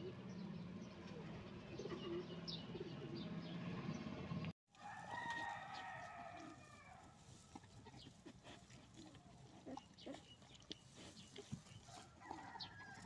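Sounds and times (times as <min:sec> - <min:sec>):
rooster crowing: 0:04.8 - 0:07.1, 0:12.0 - 0:13.0.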